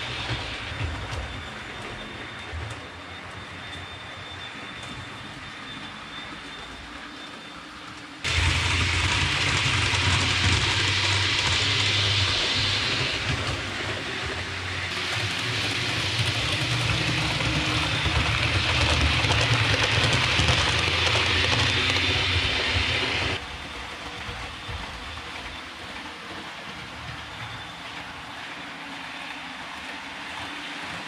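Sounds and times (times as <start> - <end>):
model train running on track: 0.0 - 31.0.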